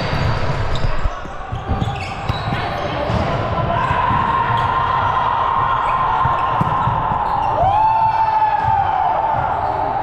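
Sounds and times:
busy hall ambience: 0.0s - 10.0s
volleyball bouncing on gym floor: 5.6s - 9.8s.

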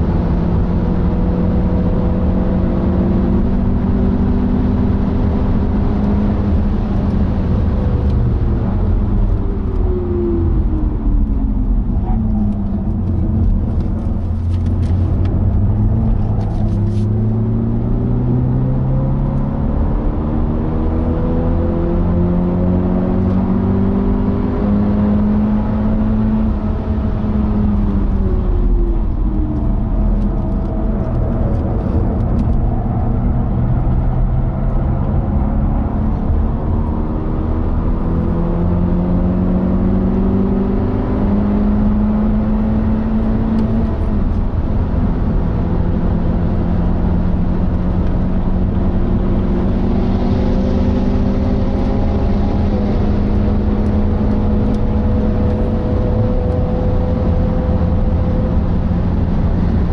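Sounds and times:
car engine revving: 0.0s - 59.9s
road and wind noise: 0.0s - 59.9s.

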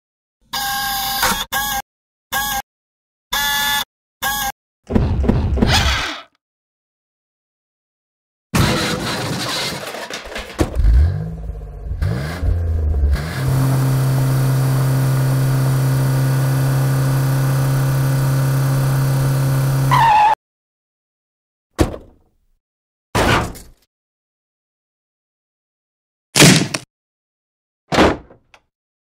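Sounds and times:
cartoon truck engine revving: 8.6s - 10.0s, 10.7s - 20.4s.

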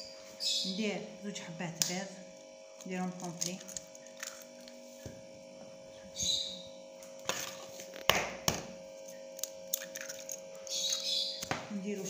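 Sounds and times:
electrical hum: 0.0s - 12.0s
eggshell cracking: 2.8s - 4.8s, 9.4s - 11.6s.

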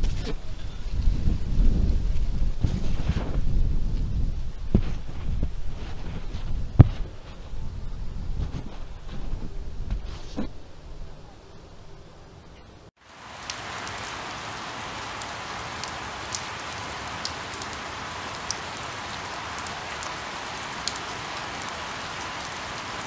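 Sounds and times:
rain falling on leaves: 13.0s - 23.0s.

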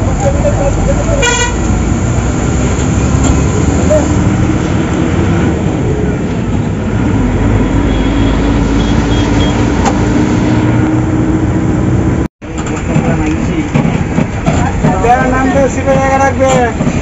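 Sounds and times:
bus engine and road noise: 0.0s - 17.0s.

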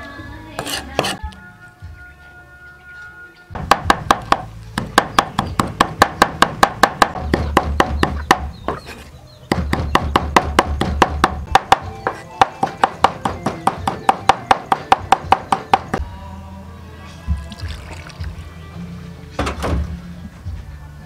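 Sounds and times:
cleaver chopping on wooden board: 3.6s - 8.8s, 9.5s - 16.0s.

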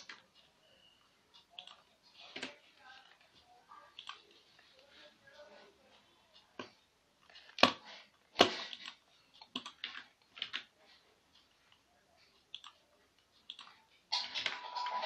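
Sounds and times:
computer mouse clicking: 1.4s - 2.6s, 3.9s - 4.3s, 8.4s - 10.7s, 12.5s - 13.8s.

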